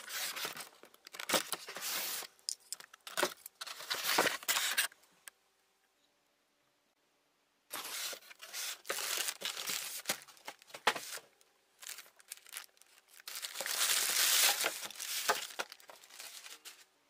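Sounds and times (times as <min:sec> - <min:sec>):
plastic bag crinkling: 0:07.7 - 0:11.2, 0:11.8 - 0:16.9.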